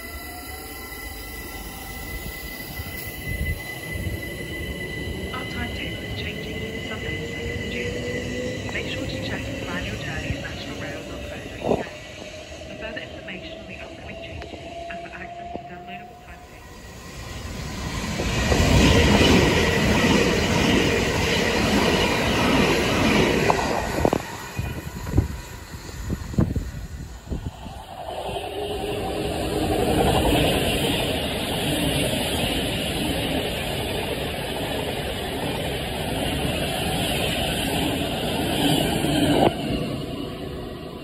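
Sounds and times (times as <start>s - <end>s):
electric train passing at speed: 0.0s - 41.0s
rush of wheels on rail: 16.8s - 41.0s.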